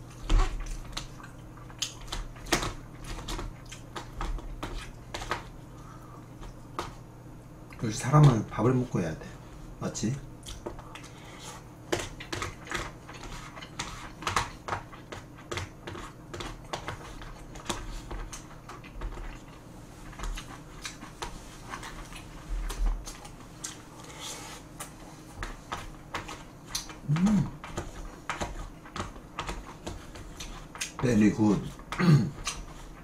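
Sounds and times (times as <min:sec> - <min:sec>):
chewing and lip smacks: 0:10.4 - 0:11.1, 0:22.0 - 0:24.1
person humming mm: 0:27.0 - 0:27.6.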